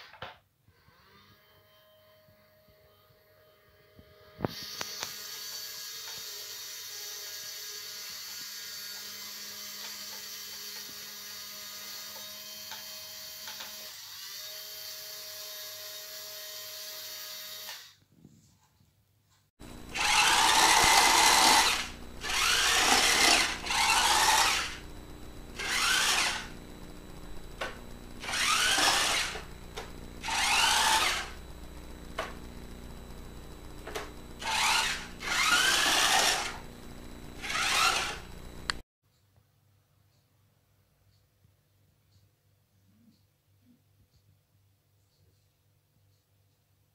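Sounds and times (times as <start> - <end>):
electric gear motors whirring: 19.6 - 38.8
steady electrical hum: 19.6 - 38.8.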